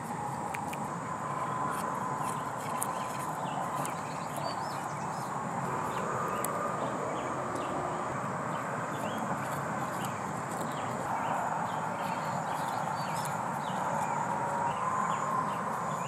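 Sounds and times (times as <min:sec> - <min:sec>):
cat teeth clicking on grass: 0:00.0 - 0:07.7, 0:08.9 - 0:14.6
steady outdoor hiss: 0:00.0 - 0:16.0.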